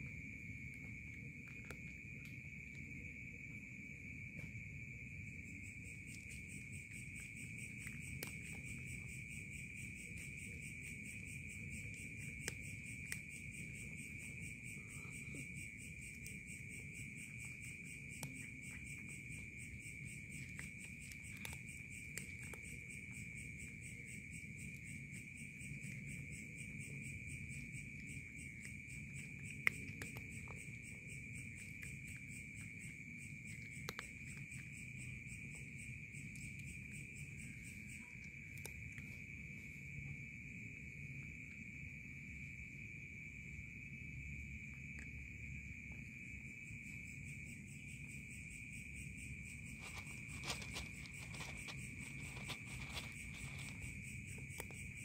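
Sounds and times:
night insects chorus: 0:00.0 - 0:55.0
cat crunching dry kibble: 0:00.7 - 0:02.9, 0:05.3 - 0:39.6, 0:49.2 - 0:55.0.

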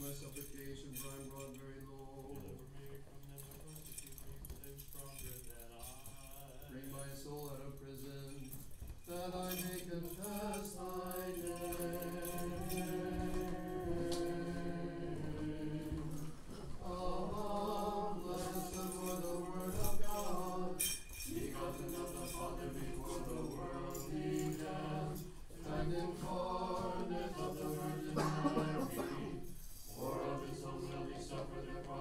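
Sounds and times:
censer bells jingling: 0:00.0 - 0:16.3, 0:16.9 - 0:30.8
choir singing in harmony: 0:09.3 - 0:32.0.

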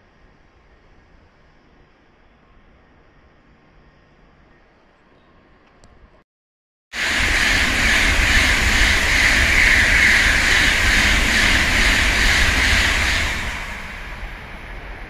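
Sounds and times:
train passing: 0:07.0 - 0:15.0.

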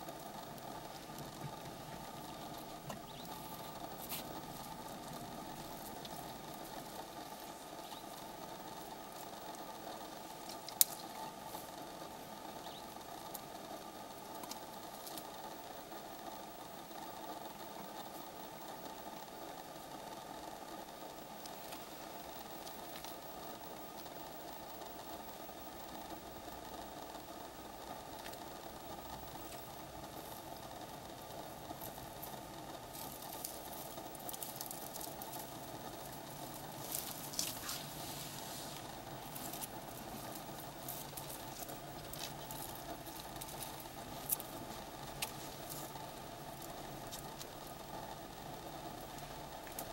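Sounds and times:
faint clicks: 0:00.0 - 0:15.5, 0:20.9 - 0:38.0, 0:38.7 - 0:49.9
dry twigs crackling and rustling: 0:00.0 - 0:49.9
vehicle engine idling: 0:00.0 - 0:49.9
branches snapping: 0:10.4 - 0:11.1, 0:32.9 - 0:46.0
elephant chewing branches: 0:31.7 - 0:47.8.

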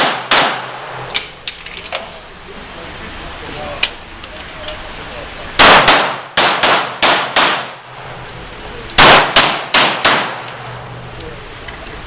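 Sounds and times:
handgun shots echoing indoors: 0:00.0 - 0:01.3, 0:05.6 - 0:07.8, 0:08.9 - 0:10.9.

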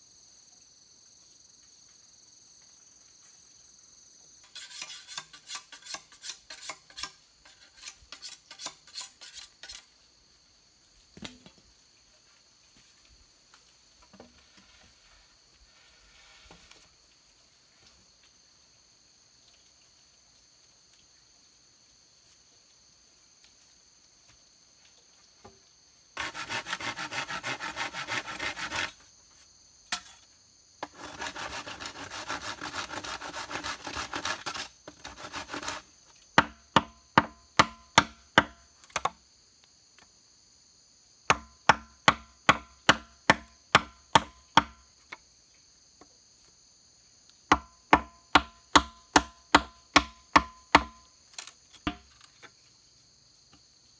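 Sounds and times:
high insect drone: 0:00.0 - 0:53.9
hand saw cutting bamboo: 0:04.4 - 0:09.9, 0:26.2 - 0:29.0, 0:30.8 - 0:35.9
blade chopping bamboo: 0:30.8 - 0:35.8, 0:36.4 - 0:39.2, 0:47.5 - 0:52.5.

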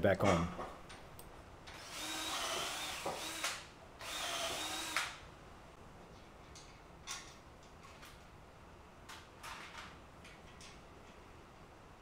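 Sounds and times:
electric drill boring timber: 0:01.8 - 0:05.1.

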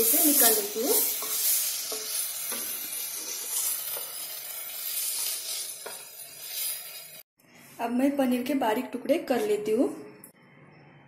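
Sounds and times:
wooden spatula scraping a pan: 0:00.0 - 0:07.2
vegetables sizzling in a pan: 0:00.0 - 0:07.3.

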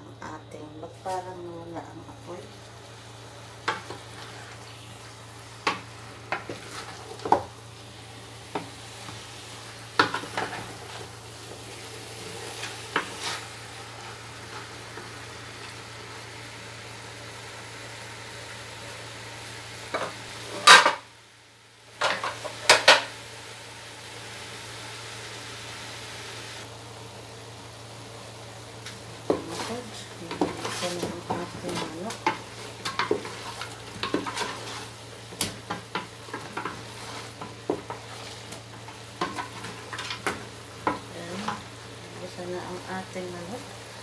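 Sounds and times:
chicken sizzling in a pot: 0:00.0 - 0:44.0
wooden spatula scraping and knocking pot: 0:05.6 - 0:07.5, 0:29.2 - 0:41.6.

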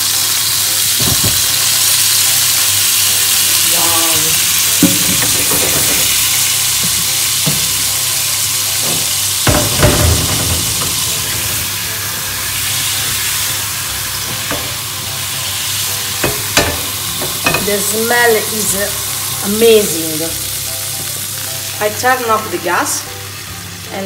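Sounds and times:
wine sizzling and bubbling in a pan: 0:00.0 - 0:24.0
knocks: 0:01.0 - 0:01.4, 0:08.8 - 0:11.8.

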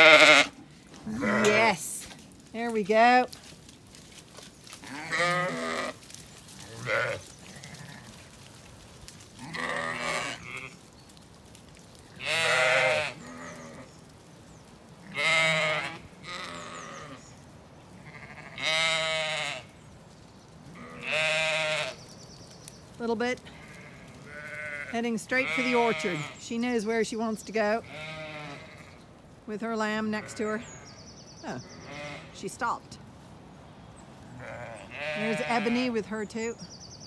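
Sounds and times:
sheep bleating: 0:00.0 - 0:02.0, 0:04.8 - 0:06.0, 0:06.6 - 0:08.2, 0:09.4 - 0:10.8, 0:12.2 - 0:13.9, 0:15.0 - 0:17.3, 0:18.0 - 0:19.7, 0:20.8 - 0:22.0, 0:23.4 - 0:26.5, 0:27.8 - 0:29.0, 0:31.5 - 0:32.4, 0:34.3 - 0:36.0.

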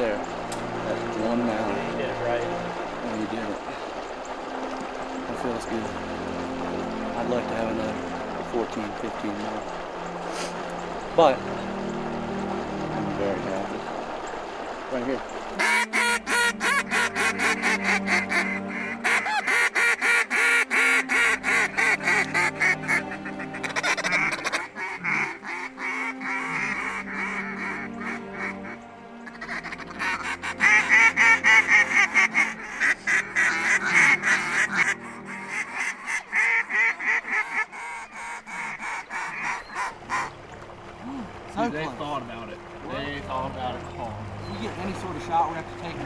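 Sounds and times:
duck call quacks: 0:15.6 - 0:40.3.

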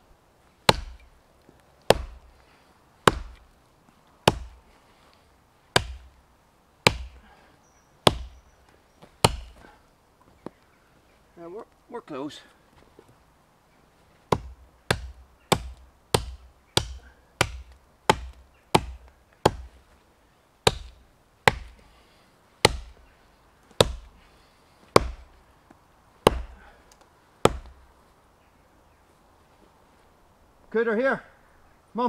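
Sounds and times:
axe chopping tree trunk: 0:00.6 - 0:01.2, 0:01.8 - 0:02.3, 0:03.0 - 0:03.5, 0:04.2 - 0:04.6, 0:05.7 - 0:06.2, 0:06.8 - 0:07.4, 0:08.0 - 0:08.4, 0:09.2 - 0:09.8, 0:14.3 - 0:19.8, 0:20.6 - 0:21.9, 0:22.6 - 0:23.1, 0:23.7 - 0:24.2, 0:24.9 - 0:25.4, 0:26.2 - 0:27.8.

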